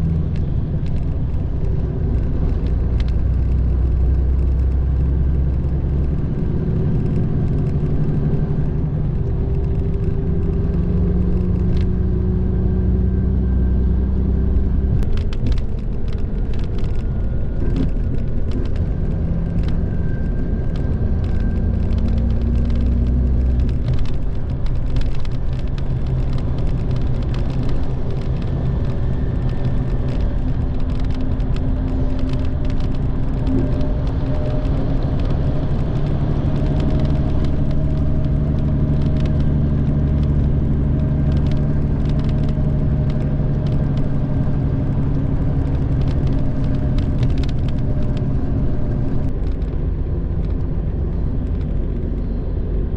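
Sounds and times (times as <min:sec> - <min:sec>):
bus diesel engine drone: 0:00.0 - 0:52.9
road noise: 0:00.0 - 0:52.9
light rattling clicks: 0:14.9 - 0:52.3.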